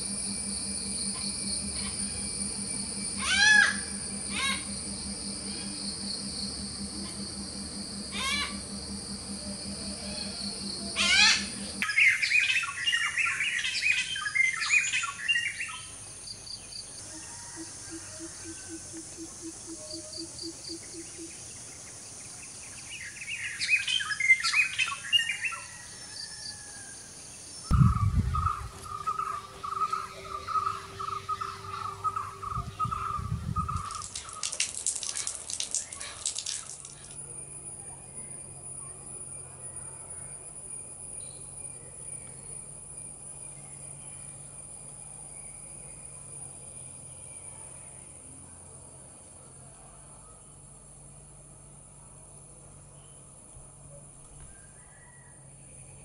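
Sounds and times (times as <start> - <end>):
hornbills cackling calls: 0.0 - 11.8, 17.2 - 21.4, 27.7 - 34.3
high insect drone: 0.0 - 56.0.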